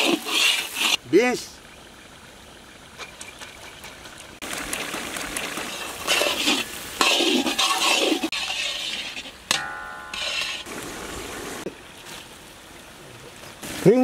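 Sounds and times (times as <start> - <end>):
spatula scraping a wok: 0.0 - 1.0, 5.5 - 10.7
vegetables sizzling in hot oil: 5.6 - 9.4.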